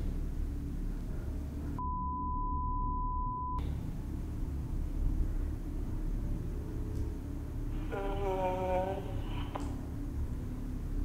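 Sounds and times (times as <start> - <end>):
low rumble: 0.0 - 11.0
censor bleep tone: 1.8 - 3.6.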